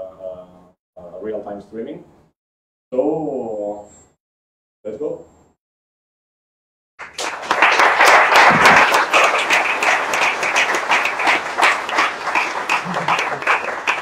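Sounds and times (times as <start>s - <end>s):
audience applauding: 7.0s - 14.0s.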